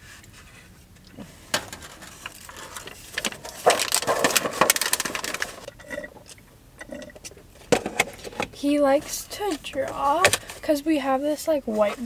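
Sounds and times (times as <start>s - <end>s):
paper bag crinkling: 1.7s - 5.7s.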